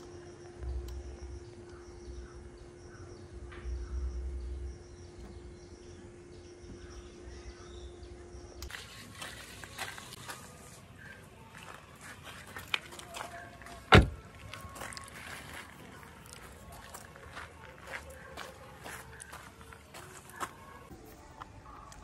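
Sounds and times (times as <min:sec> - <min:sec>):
steady low hum: 0:00.0 - 0:22.0
bird chirping: 0:00.6 - 0:08.6
loud dull thump: 0:13.9 - 0:14.2.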